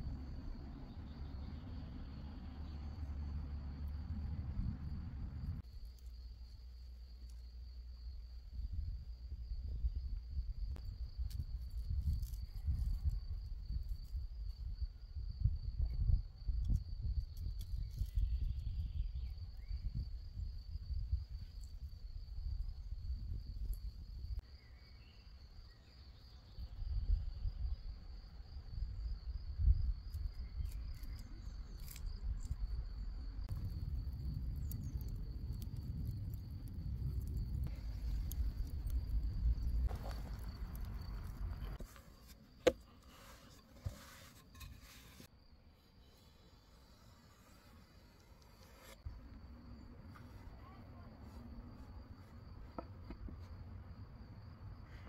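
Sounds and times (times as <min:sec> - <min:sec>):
low rumble: 0:00.0 - 0:05.6.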